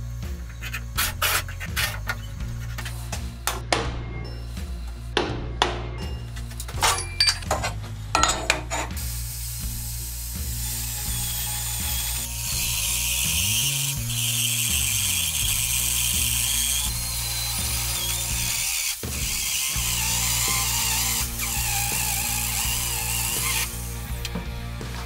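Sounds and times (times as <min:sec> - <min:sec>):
background music: 0:00.0 - 0:25.0
drill cutting into steel plate: 0:09.1 - 0:24.1.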